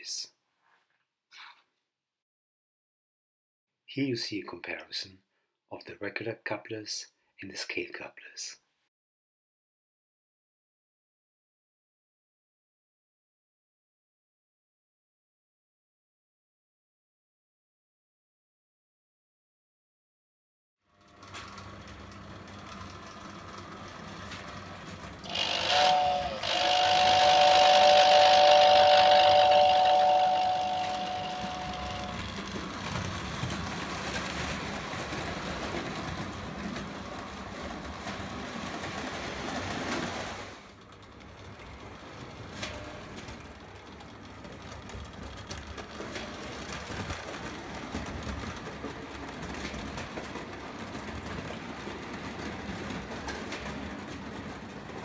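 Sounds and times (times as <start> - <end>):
toy train rumble and whine: 20.9 - 55.0
toy train two-note whistle: 25.3 - 32.3.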